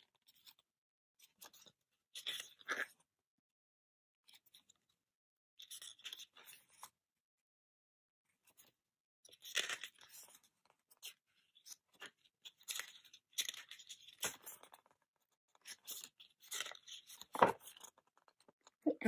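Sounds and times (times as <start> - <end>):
paper pages rustling: 1.2 - 3.0, 9.3 - 18.5.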